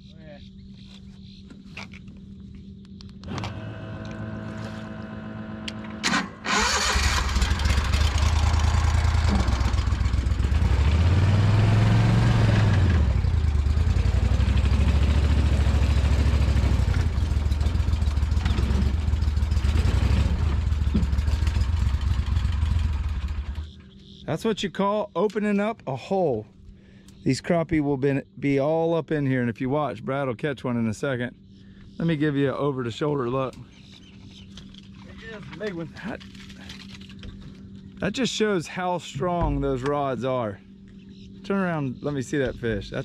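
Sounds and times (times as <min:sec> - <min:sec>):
boat motor running: 0:03.2 - 0:06.1, 0:07.2 - 0:24.2, 0:33.5 - 0:43.0.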